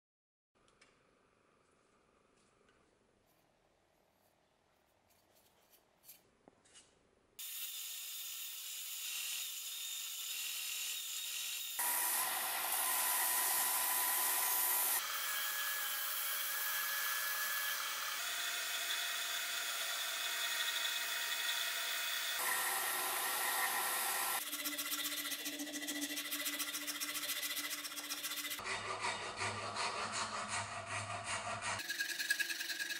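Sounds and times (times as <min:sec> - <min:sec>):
belt sander sanding wood: 0:11.8 - 0:32.9.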